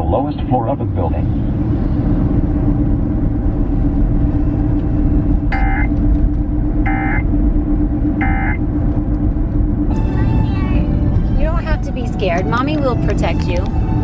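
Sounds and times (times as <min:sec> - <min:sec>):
moving car rumble: 0:00.0 - 0:14.0
warbling data bursts: 0:05.5 - 0:05.9, 0:06.8 - 0:07.2, 0:08.2 - 0:08.6.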